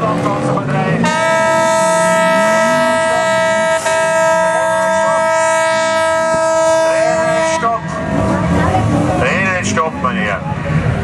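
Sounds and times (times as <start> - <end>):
horn long steady note: 0.0 - 9.2.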